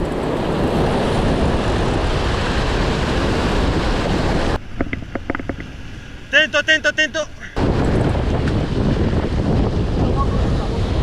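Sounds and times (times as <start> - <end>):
wind on microphone: 7.4 - 11.0.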